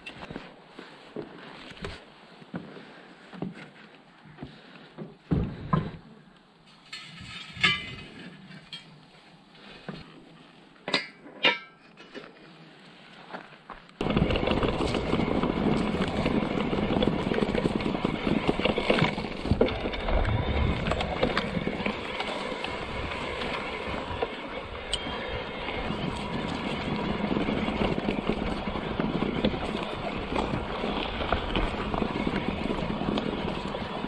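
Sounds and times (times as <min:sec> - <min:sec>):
bike rattling over railway track: 0:06.7 - 0:12.3, 0:13.2 - 0:34.0.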